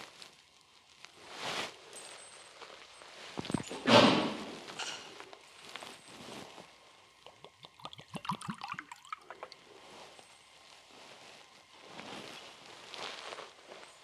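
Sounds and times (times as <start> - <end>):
liquid pouring into a chalice: 7.2 - 9.6.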